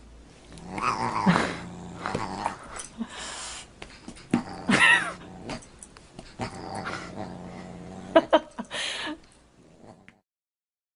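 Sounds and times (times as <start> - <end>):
dog growling: 0.5 - 3.0, 4.3 - 8.5, 9.6 - 10.2.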